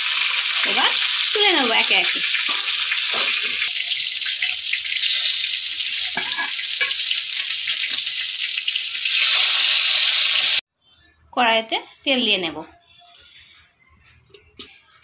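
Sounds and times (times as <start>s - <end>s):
fish sizzling in hot oil: 0.0s - 10.6s.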